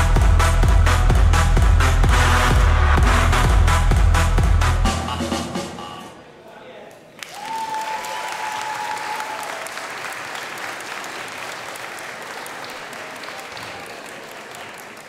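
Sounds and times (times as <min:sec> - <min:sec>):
audience applauding: 0:07.1 - 0:15.0.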